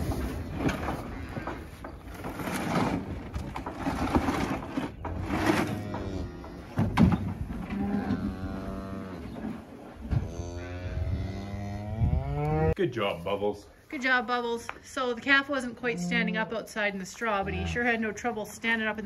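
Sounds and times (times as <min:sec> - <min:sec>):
plastic sled scraping over straw: 0:00.0 - 0:06.2
cow mooing: 0:07.7 - 0:09.3, 0:10.2 - 0:12.8, 0:15.9 - 0:16.5, 0:17.4 - 0:18.0.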